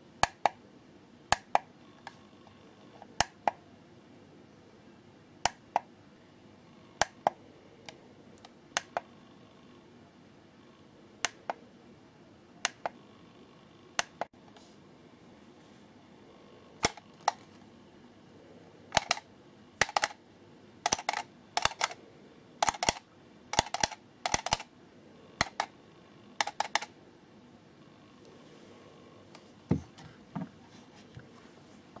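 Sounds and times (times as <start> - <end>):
loud sharp clicks: 20.8 - 22.0, 22.6 - 24.7, 26.4 - 26.9.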